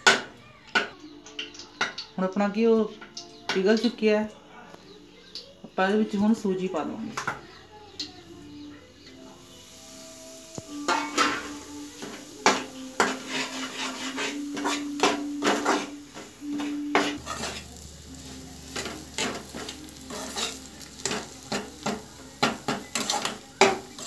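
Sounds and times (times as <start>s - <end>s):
light sizzle: 0.5s - 24.0s
metal skimmer scraping pan: 10.9s - 24.0s.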